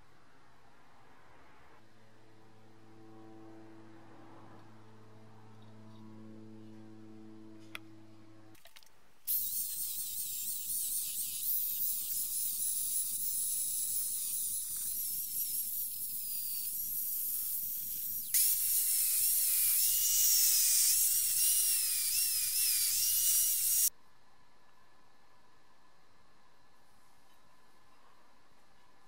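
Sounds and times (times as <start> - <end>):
sanding belt hissing on metal: 9.3 - 23.9
power file motor whine: 18.3 - 23.9.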